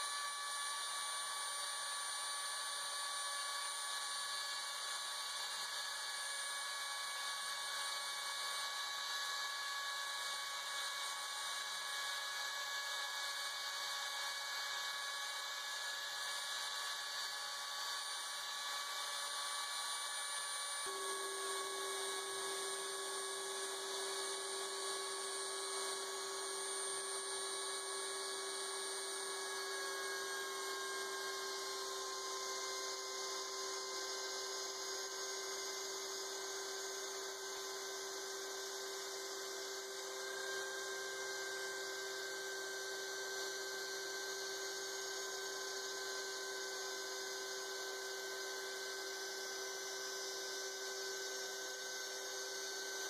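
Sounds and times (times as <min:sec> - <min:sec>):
router spindle motor whining: 0:00.0 - 0:53.0
lower steady tone: 0:20.4 - 0:53.0.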